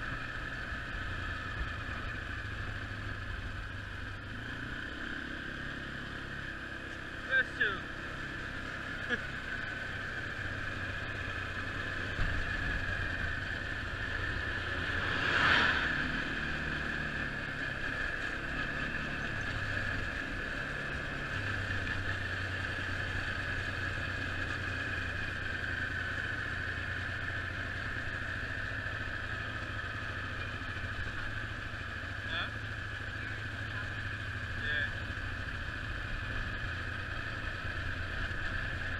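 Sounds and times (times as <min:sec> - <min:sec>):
quad bike engine running: 0:00.0 - 0:38.9
rush of noise: 0:12.2 - 0:17.4.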